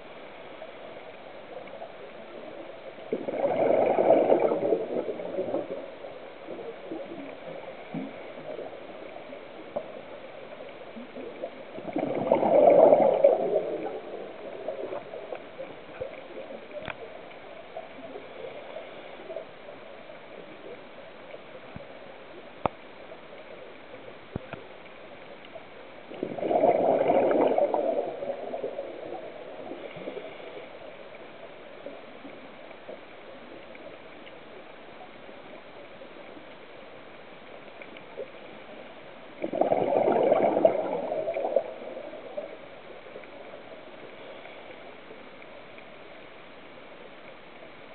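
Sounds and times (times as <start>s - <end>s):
faint steady hiss: 0.0s - 47.9s
breath bubbling underwater: 3.1s - 5.8s, 11.2s - 15.1s, 26.1s - 30.4s, 39.4s - 42.3s.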